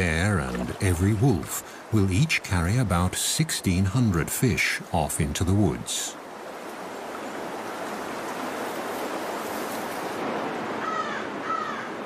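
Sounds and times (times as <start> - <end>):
creek water flowing: 0.0 - 11.9
bird calling: 10.8 - 12.0.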